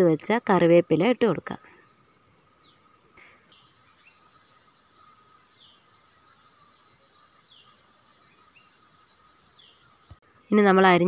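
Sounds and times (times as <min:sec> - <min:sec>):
bird chirping: 0:00.0 - 0:11.0
faint steady hum: 0:00.0 - 0:11.0.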